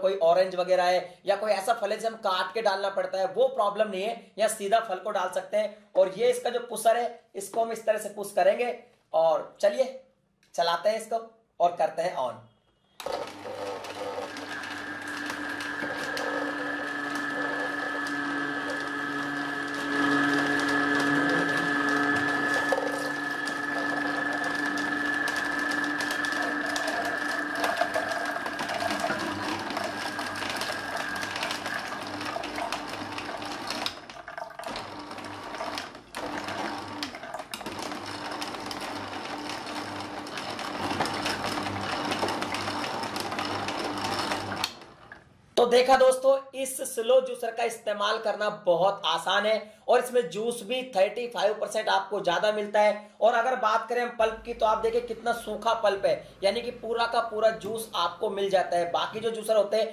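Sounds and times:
juicer motor humming and whining: 0:13.0 - 0:45.2.

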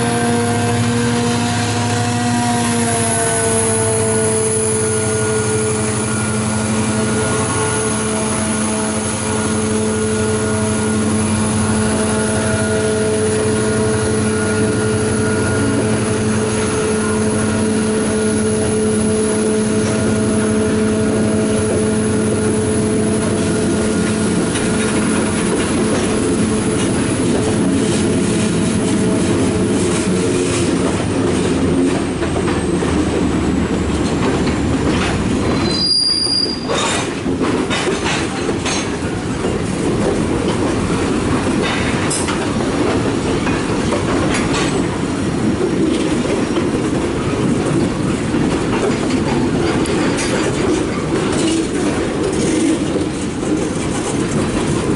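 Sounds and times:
diesel locomotive drone: 0:00.0 - 0:54.9
freight train rolling past: 0:00.0 - 0:54.9
wheels clicking over rail joints: 0:29.8 - 0:35.9, 0:36.5 - 0:54.9
faint high wheel squeal: 0:35.6 - 0:37.0.

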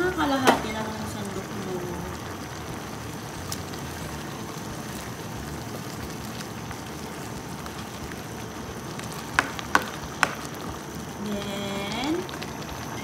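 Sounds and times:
stew bubbling in a wok: 0:00.0 - 0:13.0
ladle knocking against pan: 0:09.3 - 0:10.5.

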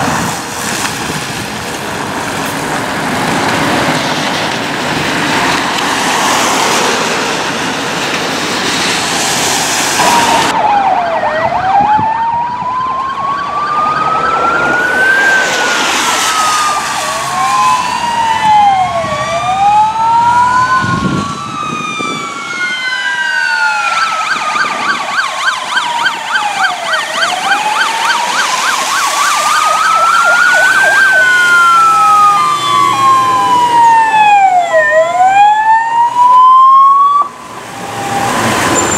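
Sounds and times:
fire engine siren wailing: 0:00.0 - 0:38.9
fire truck engine and tyres: 0:00.0 - 0:38.9
fast warbling siren: 0:10.0 - 0:38.9.

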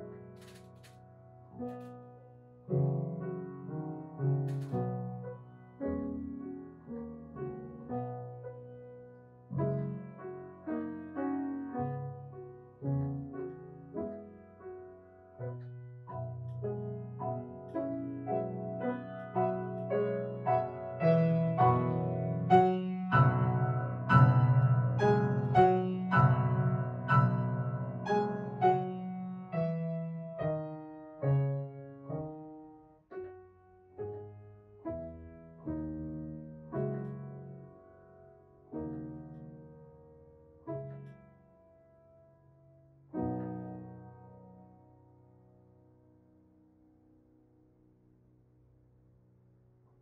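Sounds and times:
solo piano playing: 0:00.0 - 0:48.0.

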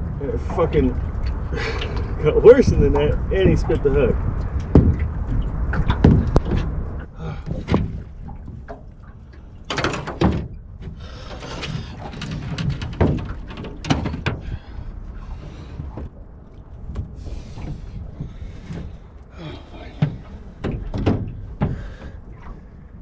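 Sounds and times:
low rumble: 0:00.0 - 0:23.0
net knocking against metal boat: 0:04.6 - 0:06.8, 0:07.4 - 0:08.9, 0:09.7 - 0:14.8, 0:19.9 - 0:22.2.

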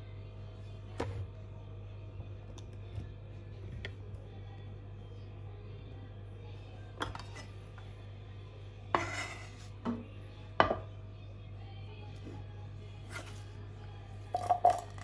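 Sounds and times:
steady low hum: 0:00.0 - 0:15.0
bowl set down with knock: 0:10.6 - 0:10.9
dishes clattering on cutting board: 0:10.6 - 0:10.9.

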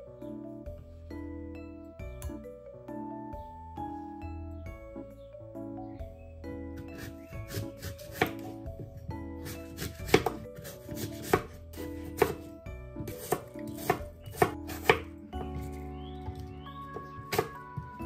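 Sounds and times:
knife chopping on wooden board: 0:07.0 - 0:08.5, 0:09.4 - 0:17.6.

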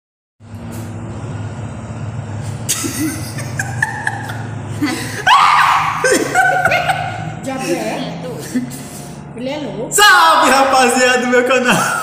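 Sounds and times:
man and woman laughing: 0:02.7 - 0:08.9.

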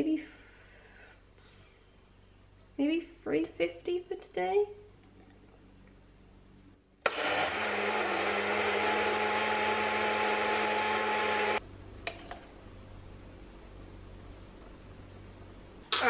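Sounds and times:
blender motor running: 0:07.1 - 0:11.6.

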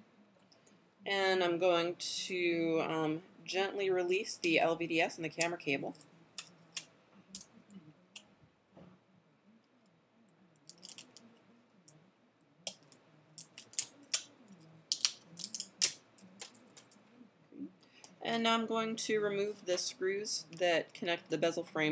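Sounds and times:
cable connectors clicking: 0:14.9 - 0:17.0.

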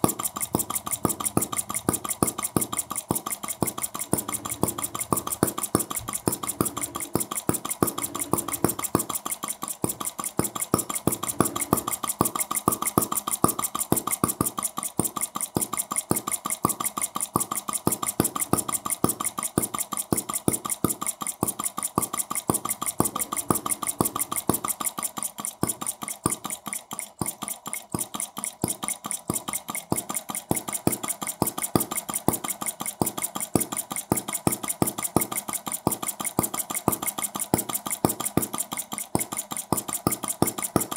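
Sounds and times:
small engine clicking steadily: 0:00.0 - 0:40.9.

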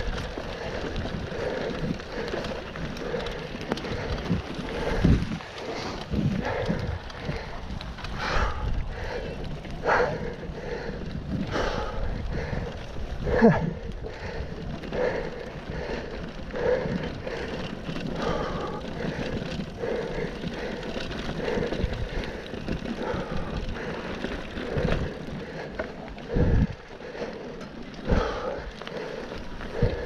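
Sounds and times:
bike tyre rumble: 0:00.0 - 0:30.0
rider heavy breathing: 0:00.0 - 0:30.0
wind on microphone: 0:03.8 - 0:14.9, 0:26.2 - 0:26.8.

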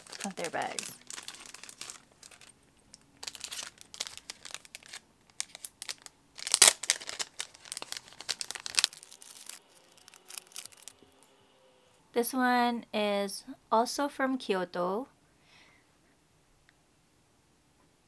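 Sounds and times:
plastic sleeves crinkling: 0:00.0 - 0:11.1.

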